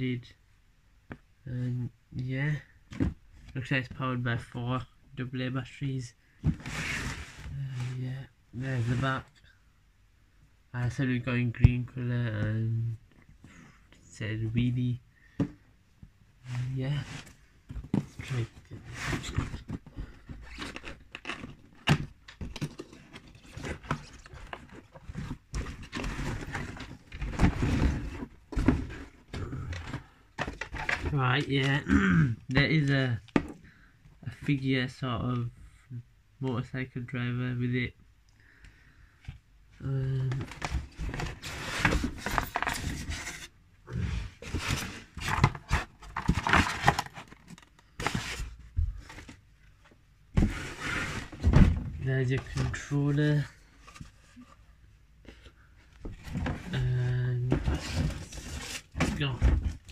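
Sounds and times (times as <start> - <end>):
cardboard scraping and rustling: 6.5 - 8.0, 16.5 - 31.7, 40.3 - 49.4, 50.4 - 54.6, 56.0 - 59.9.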